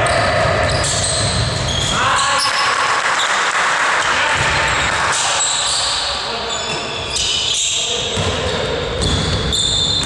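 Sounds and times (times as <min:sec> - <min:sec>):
background noise: 0:00.0 - 0:10.0
basketball bouncing on floor: 0:08.2 - 0:08.4, 0:09.0 - 0:10.0.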